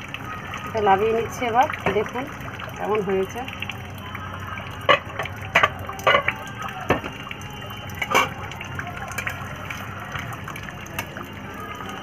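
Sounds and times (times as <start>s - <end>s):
cookware clattering: 4.9s - 6.3s, 8.0s - 8.4s.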